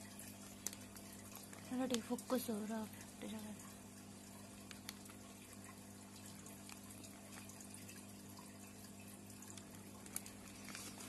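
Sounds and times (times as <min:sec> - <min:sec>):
faint steady low hum: 0:00.0 - 0:11.0.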